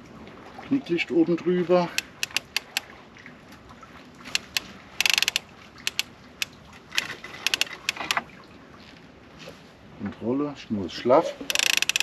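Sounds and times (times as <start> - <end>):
fishing reel ratchet clicking: 1.9 - 2.8, 4.3 - 6.1, 7.0 - 8.2, 11.5 - 12.0.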